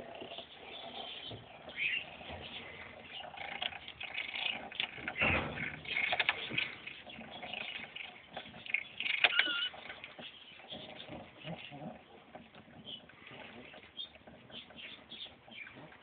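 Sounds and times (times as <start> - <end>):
bump: 5.0 - 6.8.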